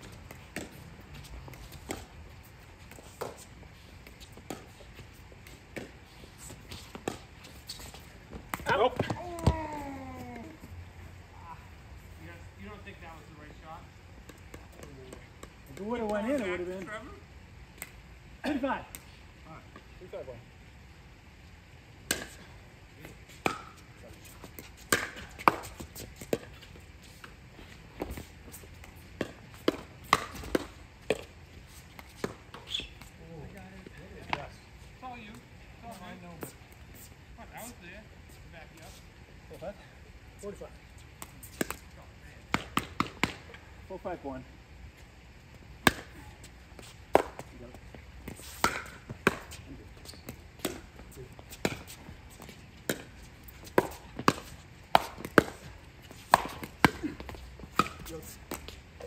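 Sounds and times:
paddles hitting plastic ball: 7.0 - 10.6, 47.1 - 47.6, 50.2 - 58.8.

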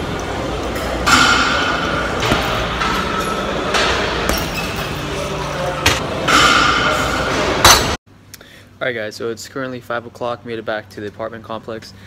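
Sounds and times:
gym background noise: 0.0 - 8.0.

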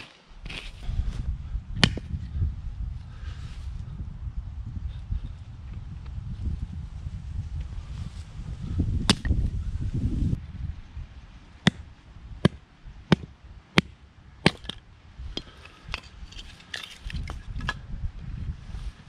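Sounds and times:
low rumble: 0.4 - 15.4.

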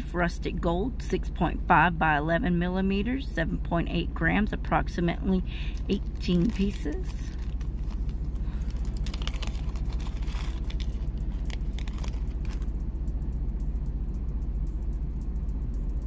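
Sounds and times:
steady low rumble: 0.0 - 16.0
plastic bag rustling: 5.8 - 12.7.

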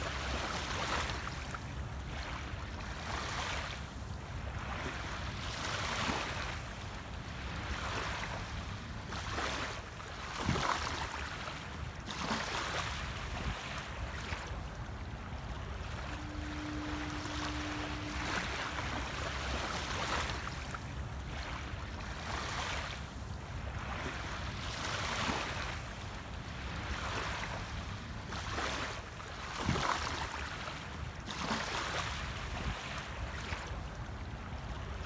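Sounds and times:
small waves lapping on sand: 0.0 - 35.0
steady low tone: 13.0 - 24.5.

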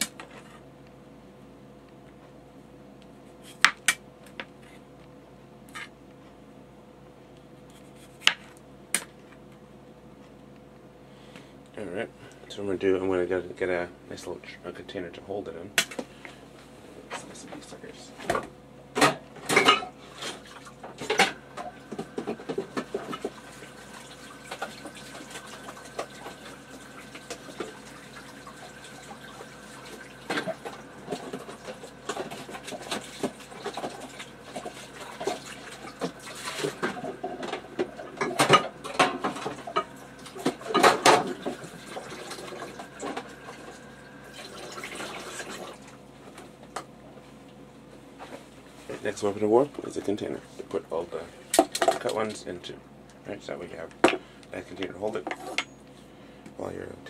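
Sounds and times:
dishes clattering: 19.0 - 20.4, 36.0 - 41.6
tap running: 20.8 - 45.8.

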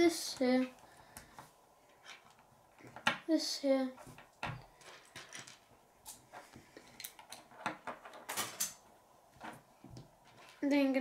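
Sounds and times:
plastic pieces clicking and clattering: 4.8 - 5.7.

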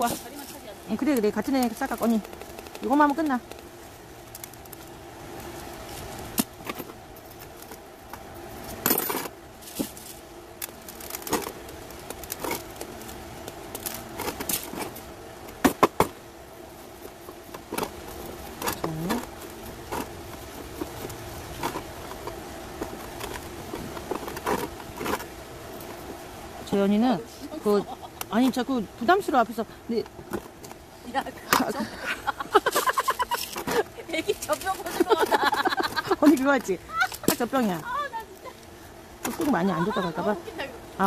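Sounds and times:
grit rattling and clicking: 0.0 - 4.9.

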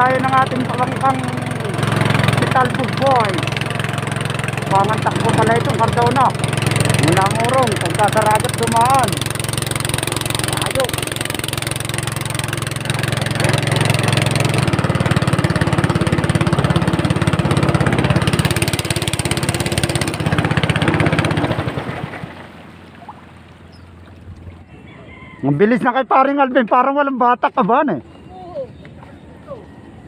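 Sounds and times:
motor boat engine running: 0.0 - 30.0.

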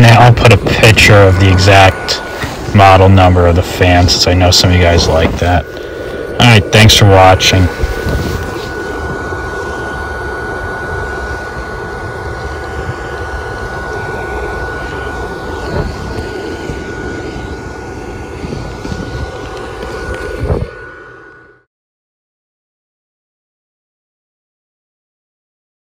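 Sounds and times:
electric blower fan whirring: 0.0 - 21.7.

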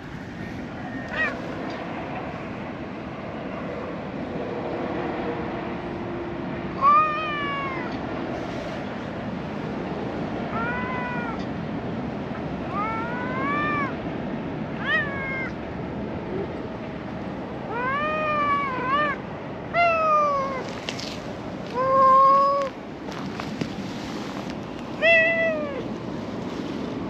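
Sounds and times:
cat meowing: 1.0 - 1.4, 6.8 - 8.0, 10.5 - 11.4, 12.7 - 14.0, 14.8 - 15.6, 17.7 - 20.7, 25.0 - 25.9.

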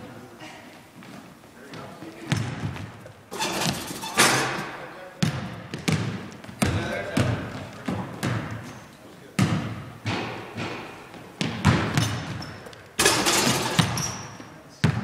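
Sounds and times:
basketball bouncing on hardwood floor: 2.3 - 3.0, 5.2 - 8.8, 9.4 - 12.7, 13.4 - 14.2, 14.8 - 15.0
basketball rim crash: 13.0 - 14.2.

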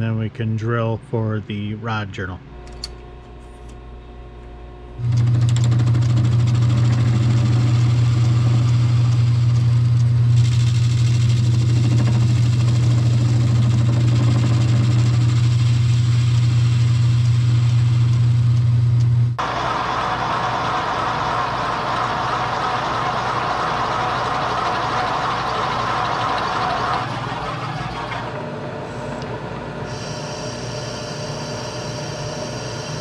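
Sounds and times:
lathe motor humming: 5.0 - 18.3, 19.4 - 33.0
lathe tool cutting hiss: 29.9 - 33.0.

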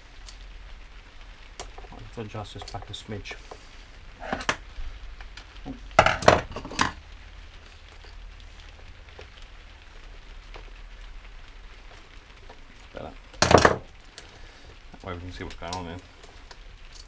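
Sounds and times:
metal tools clinking and clattering: 4.2 - 4.6, 6.0 - 7.0.

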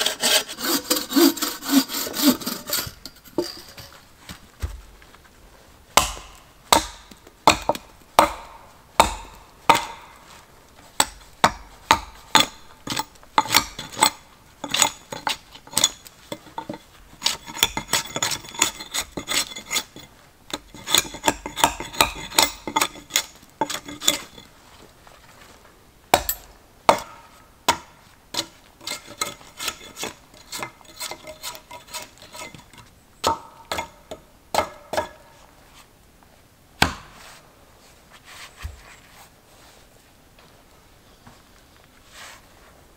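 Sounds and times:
axe chopping wood: 6.0 - 10.2, 26.1 - 28.0, 33.2 - 35.2, 36.8 - 37.2.

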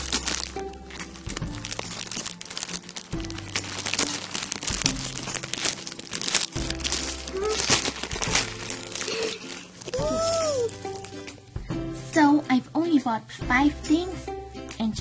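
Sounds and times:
plastic bag crinkling: 0.0 - 11.4
ukulele background music: 0.0 - 15.0.

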